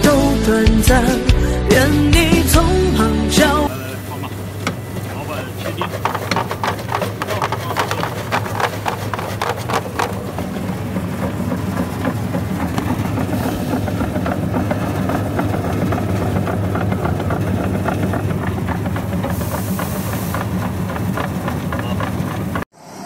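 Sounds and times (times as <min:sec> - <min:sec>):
electric motor hum: 0:02.2 - 0:22.7
clattering knocks of cutter: 0:04.6 - 0:22.7.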